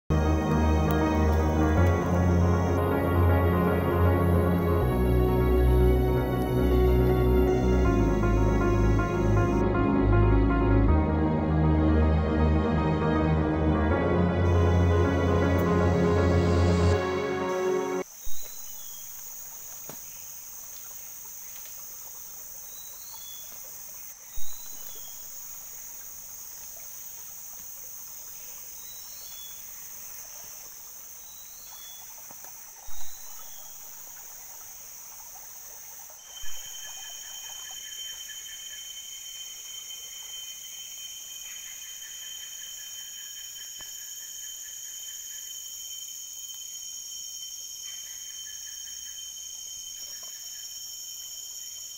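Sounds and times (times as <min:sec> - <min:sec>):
insects droning: 0:00.1 - 0:09.6, 0:14.0 - 0:51.9
short insect chirps: 0:14.5 - 0:51.9.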